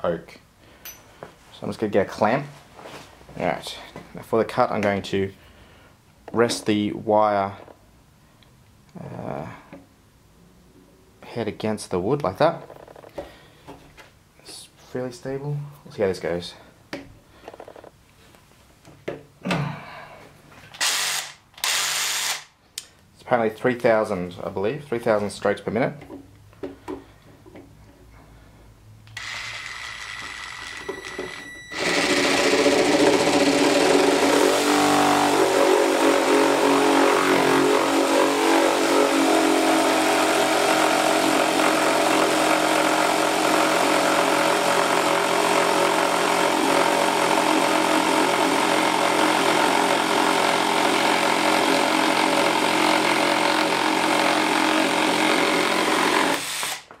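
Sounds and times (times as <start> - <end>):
reciprocating saw cutting wood: 31.8 - 56.9.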